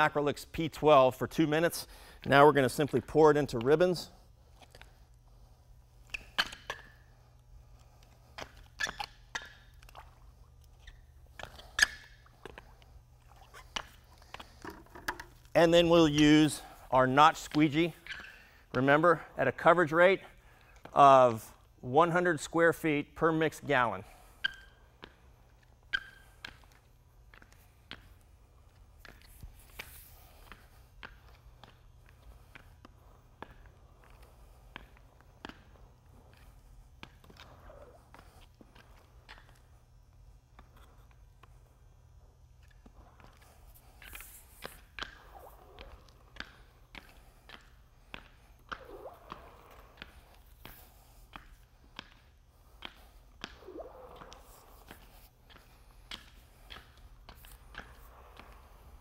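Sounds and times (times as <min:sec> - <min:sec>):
shoes shifting on concrete: 0:00.0 - 0:21.0, 0:22.8 - 0:59.0
steady low hum: 0:00.0 - 0:59.0
squeegee dragging through resin: 0:53.6 - 0:55.2.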